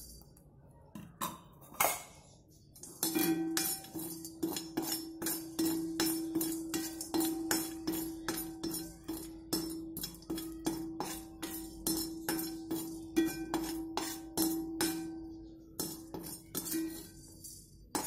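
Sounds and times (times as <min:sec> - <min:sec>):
sharp metal clinks: 0:00.0 - 0:00.4.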